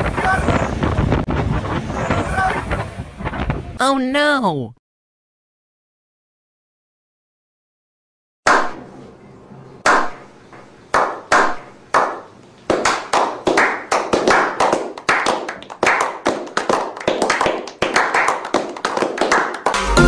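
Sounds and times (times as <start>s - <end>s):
men clapping: 10.9s - 19.9s.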